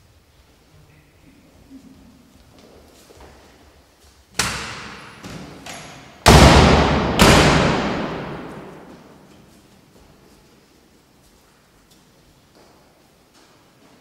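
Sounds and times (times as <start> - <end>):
heavy thumps echoing in hall: 4.3 - 9.6.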